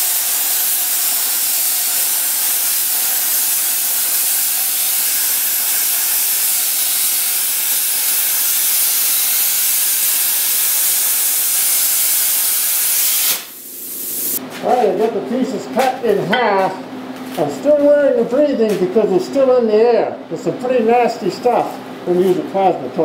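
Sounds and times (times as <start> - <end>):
plasma torch hissing: 0.0 - 14.4.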